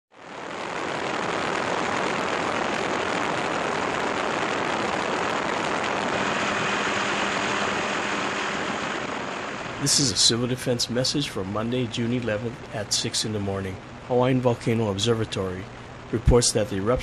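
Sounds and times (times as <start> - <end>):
helicopter engine and rotor: 4.0 - 9.8.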